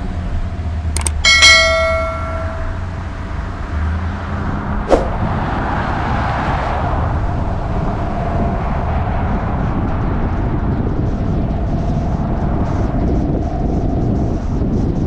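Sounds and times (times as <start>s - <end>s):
car engine and road rumble: 0.0s - 14.8s.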